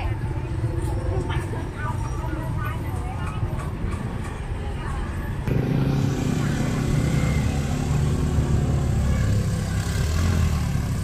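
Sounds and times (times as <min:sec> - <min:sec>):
street traffic: 0:00.0 - 0:11.0
engine running close by: 0:05.4 - 0:11.0.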